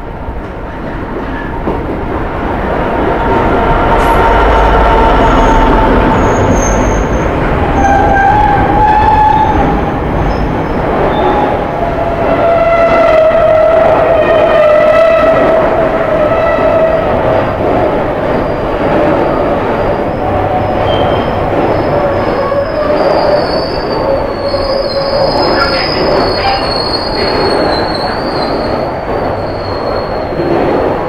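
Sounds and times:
train wheels rumbling on rail: 0.0s - 31.0s
high wheel squeal: 20.8s - 30.4s.

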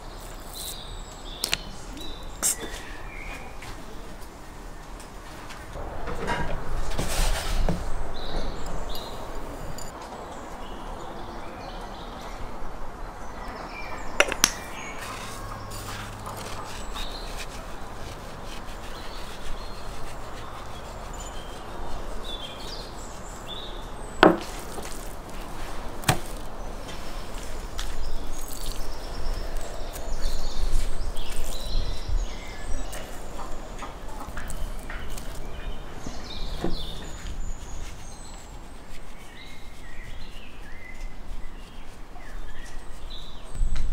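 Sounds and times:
meat handled on wooden table: 24.2s - 30.0s, 32.8s - 35.8s.

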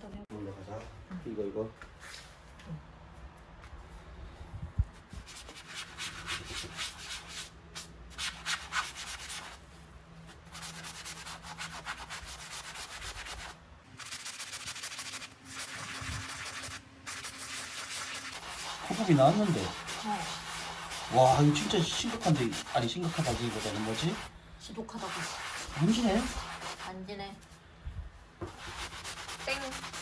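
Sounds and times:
pad scrubbing wallpaper: 10.4s - 24.3s, 24.9s - 27.1s, 28.5s - 30.0s.

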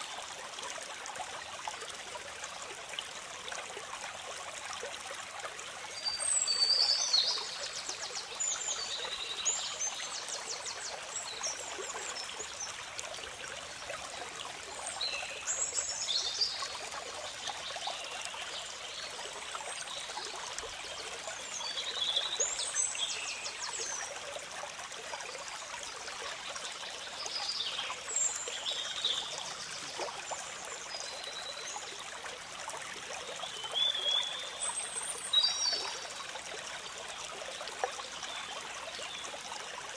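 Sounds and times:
stream trickling over rocks: 0.0s - 39.9s.

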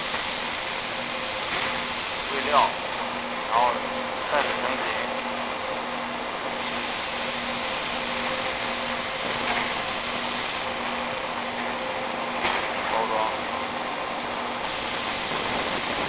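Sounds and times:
packaging machine hissing: 0.0s - 2.8s, 6.6s - 10.8s, 14.6s - 16.0s
machine low hum: 0.0s - 16.0s.

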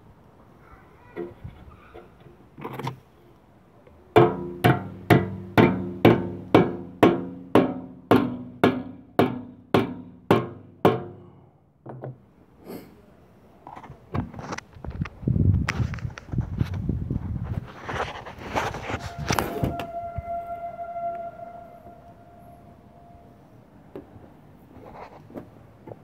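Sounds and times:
hammer striking sheet metal: 4.2s - 11.3s.

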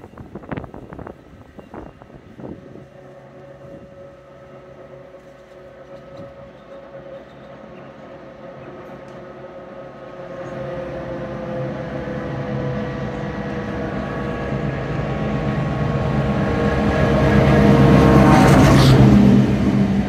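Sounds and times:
low engine hum: 0.0s - 20.0s
train approaching: 0.0s - 20.0s.

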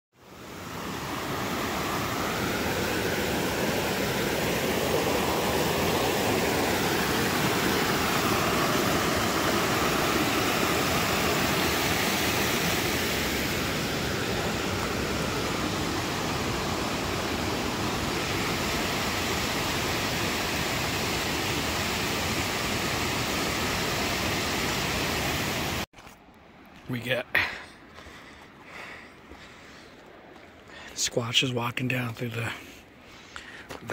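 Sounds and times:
creek rushing over rocks: 0.2s - 25.9s.

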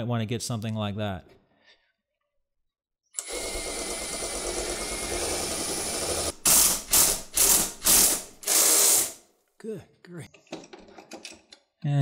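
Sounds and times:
drill bit ratcheting bursts: 3.2s - 9.2s
power drill boring through plastic: 3.2s - 9.2s.

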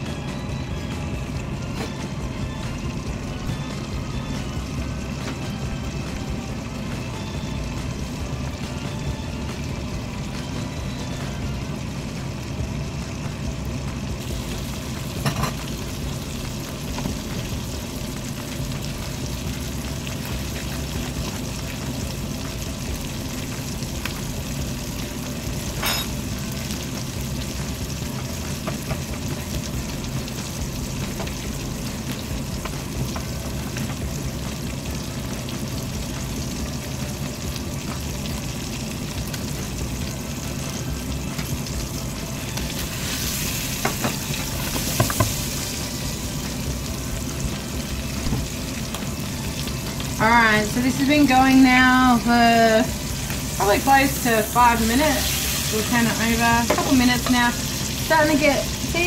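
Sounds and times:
chicken sizzling in a frying pan: 0.0s - 59.0s.

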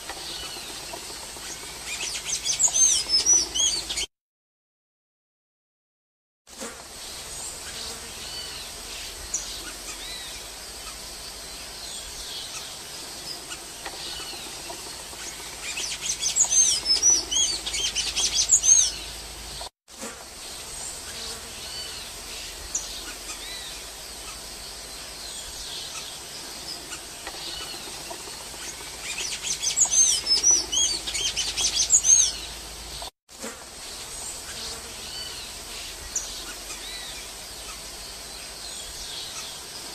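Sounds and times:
bird twittering song: 0.0s - 4.1s, 7.4s - 19.7s, 20.8s - 33.1s
faint high bird calls: 0.0s - 4.1s, 12.3s - 19.7s, 25.4s - 33.1s.

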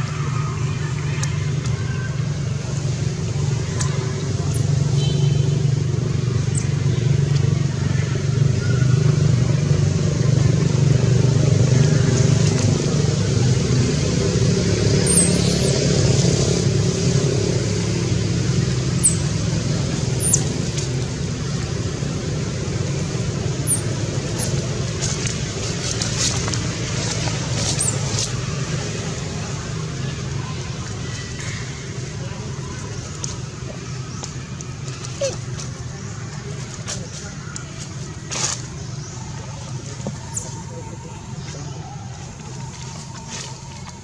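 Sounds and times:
high chirps: 15.0s - 16.0s.

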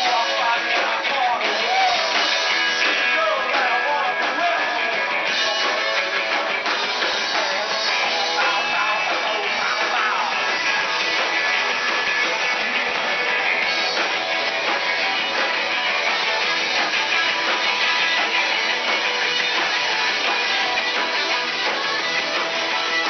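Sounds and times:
person singing: 0.0s - 13.2s
live rock band playing: 0.0s - 23.0s.

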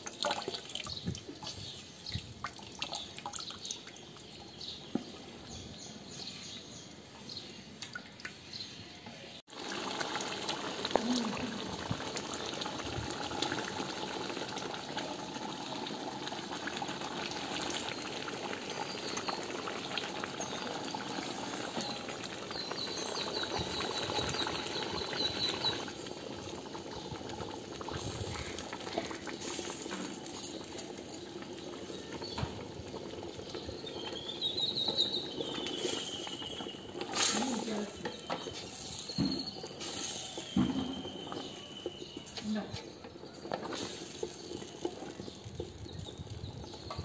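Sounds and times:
curry boiling in a pot: 9.5s - 47.0s.

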